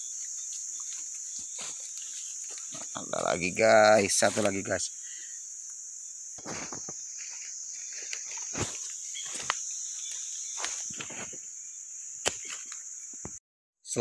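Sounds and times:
chorus of insects: 0.0 - 14.0
footsteps crunching through dry leaves: 0.2 - 3.2, 4.1 - 4.8, 6.4 - 11.4.

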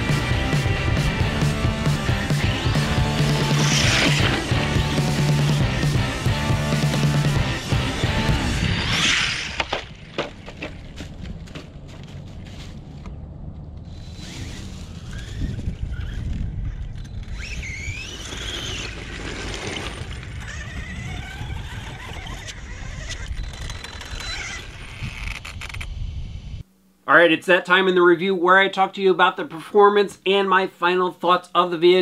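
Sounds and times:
electric rc truck motor whining: 1.5 - 10.1, 13.8 - 25.9
low rumble: 10.8 - 17.1.

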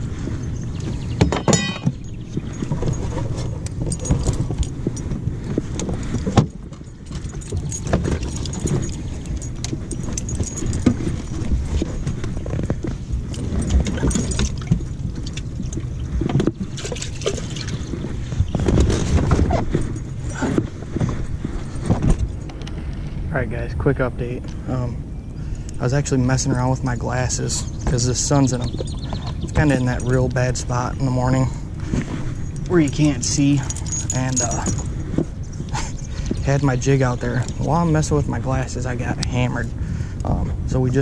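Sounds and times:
microphone handling rustling: 0.0 - 23.3, 26.4 - 41.0.

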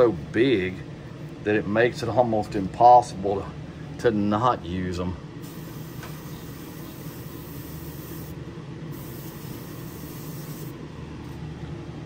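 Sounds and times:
exhaust fan hum: 0.0 - 12.0
airbrush spraying: 5.4 - 10.8.

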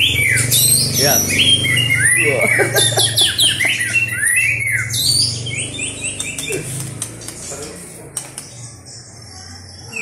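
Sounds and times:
bird whistling and clicking: 5.8 - 8.6.

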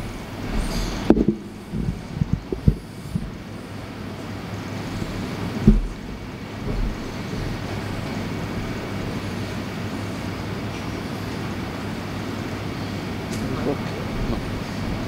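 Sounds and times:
low room rumble: 0.0 - 15.0.

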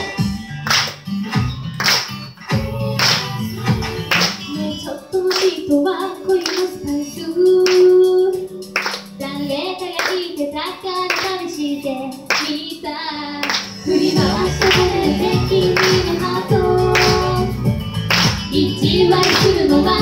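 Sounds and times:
pop backing track: 0.0 - 20.0
hand claps: 0.6 - 4.5, 5.3 - 5.7, 6.4 - 6.8, 7.6 - 7.9, 8.7 - 9.2, 10.0 - 10.3, 11.1 - 11.5, 12.3 - 12.6, 13.4 - 13.8, 14.5 - 15.0, 15.6 - 17.4, 18.0 - 18.6, 19.2 - 19.7
women singing into microphones: 2.6 - 8.6, 9.2 - 17.6, 18.5 - 20.0.

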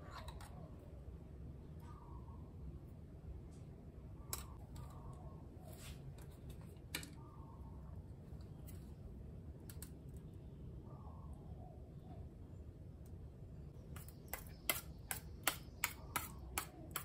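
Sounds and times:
metal spoon scraping a bowl: 13.9 - 17.0.

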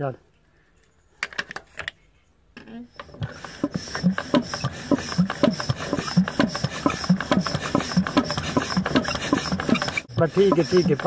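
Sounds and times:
diesel engine chuffing slowly: 3.2 - 11.0.

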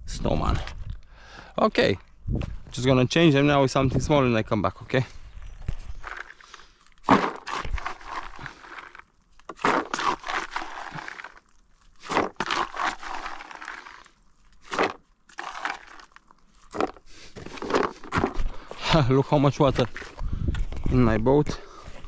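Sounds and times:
corn kernels scraping and rattling: 5.7 - 22.0.

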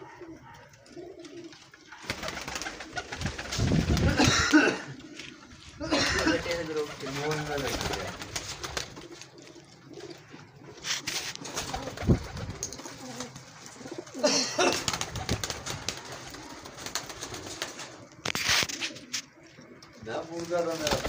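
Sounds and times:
pigeons cooing: 0.0 - 21.0
brief rustling: 10.8 - 11.8.

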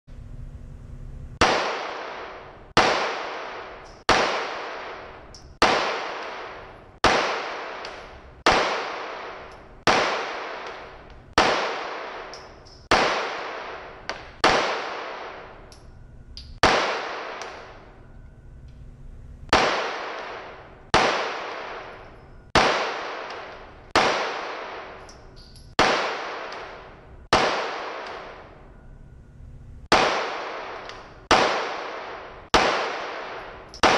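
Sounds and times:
handgun shots echoing: 1.4 - 17.9, 19.5 - 28.6, 29.9 - 33.9.

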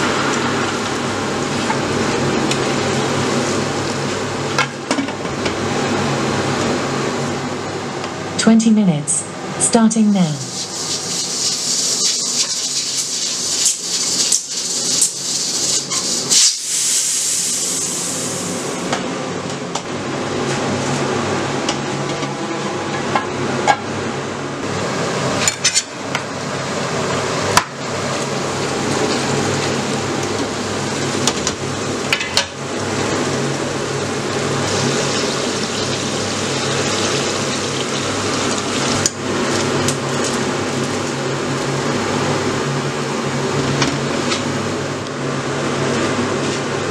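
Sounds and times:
steady hiss and hum: 9.0 - 19.0.

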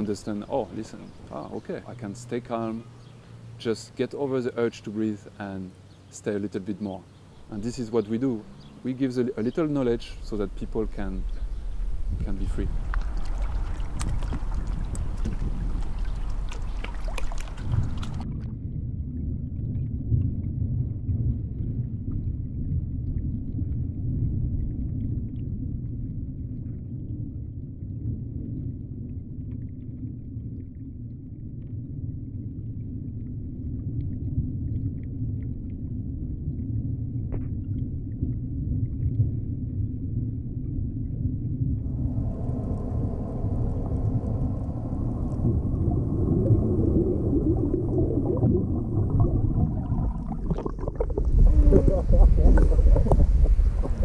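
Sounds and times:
low underwater rumble: 0.0 - 3.6, 6.8 - 54.0
faint underwater clicks: 6.8 - 18.4, 42.3 - 54.0
surface water sloshing: 11.7 - 18.4, 42.6 - 54.0.

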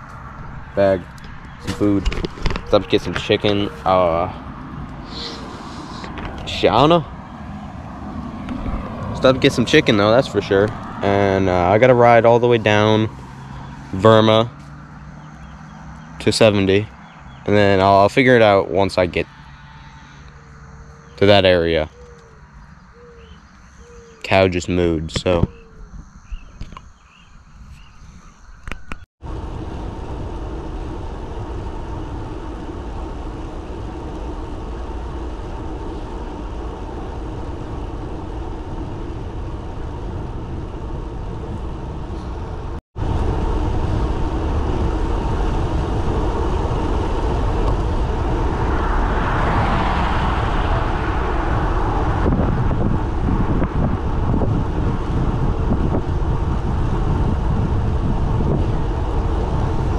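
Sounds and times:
bicycle tyres on asphalt: 0.0 - 17.5, 19.2 - 24.0, 25.5 - 59.9
wind on microphone: 27.6 - 59.9.

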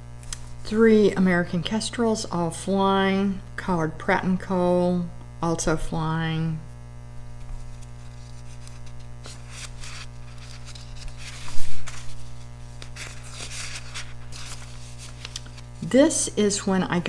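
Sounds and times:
steady electrical hum: 0.0 - 17.0
paper rustling: 7.4 - 15.9.

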